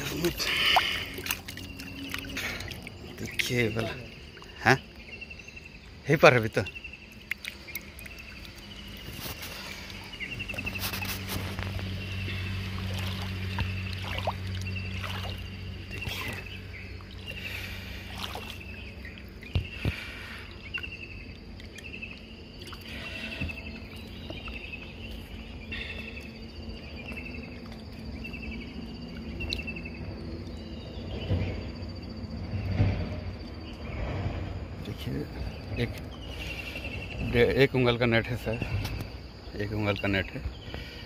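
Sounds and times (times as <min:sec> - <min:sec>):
water splashing: 0:00.0 - 0:04.9, 0:07.0 - 0:24.6.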